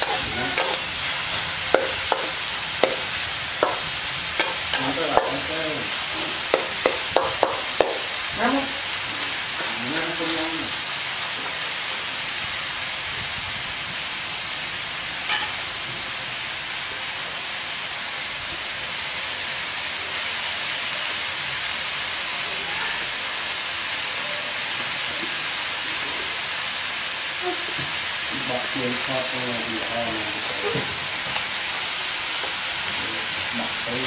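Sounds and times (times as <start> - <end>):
food sizzling in a wok: 0.0 - 34.0.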